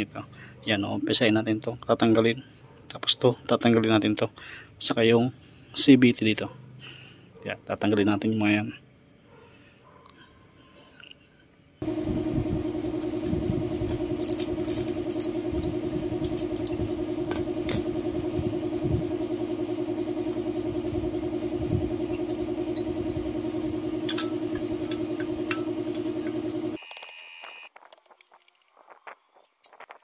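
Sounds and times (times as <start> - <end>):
steady mechanical hum: 11.1 - 26.8.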